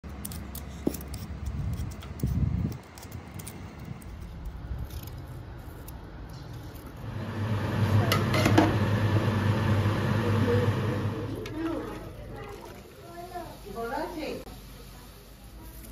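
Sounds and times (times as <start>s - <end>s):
peeler and knife scraping mango: 0.0s - 7.0s
steady low hum: 0.5s - 12.4s.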